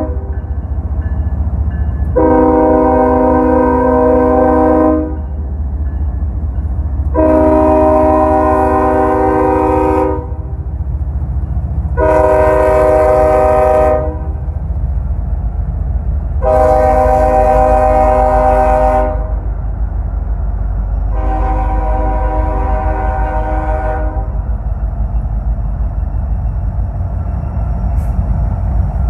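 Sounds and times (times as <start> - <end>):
locomotive air horn blasts: 0.0 - 0.3, 2.2 - 5.2, 7.1 - 10.5, 12.0 - 14.4, 16.4 - 19.5, 21.1 - 24.4
train rumbling: 0.0 - 29.0.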